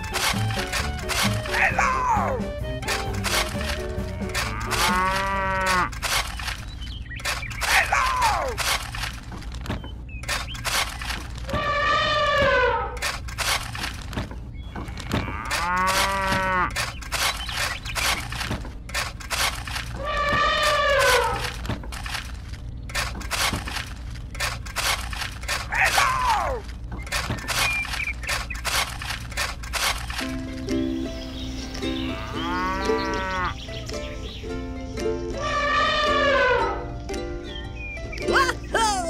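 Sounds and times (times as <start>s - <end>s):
small ticks and scratches: 3.2s - 7.8s, 14.8s - 26.1s
cow mooing: 4.0s - 5.9s, 15.0s - 16.7s, 32.1s - 33.6s.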